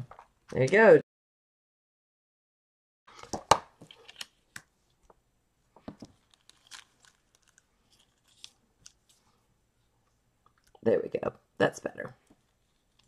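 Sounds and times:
plastic bag crinkling: 6.1s - 9.0s.

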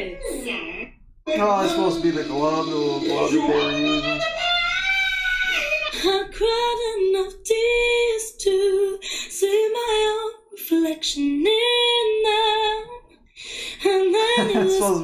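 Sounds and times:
woman singing unaccompanied: 1.3s - 2.2s, 2.8s - 4.5s, 6.0s - 13.0s, 13.7s - 15.0s.

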